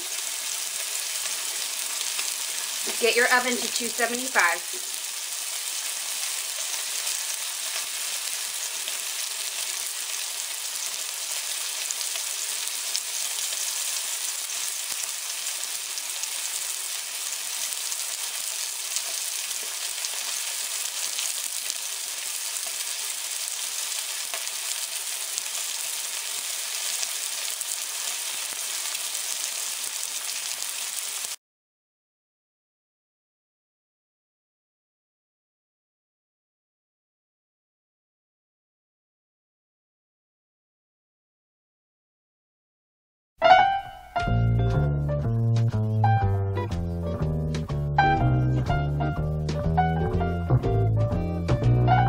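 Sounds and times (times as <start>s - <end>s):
meat sizzling in hot oil: 0.0s - 31.4s.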